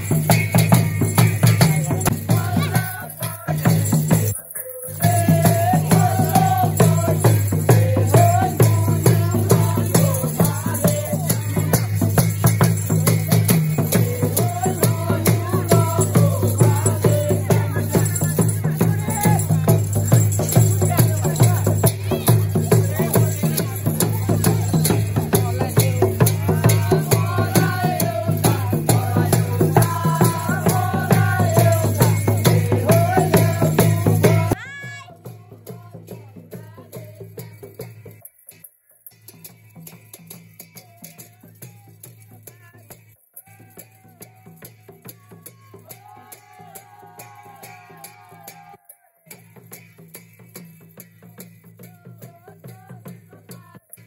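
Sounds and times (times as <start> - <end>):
drum beat: 0.0 - 38.2, 39.8 - 48.8
rattling percussion: 0.0 - 54.0
person singing: 1.6 - 12.1.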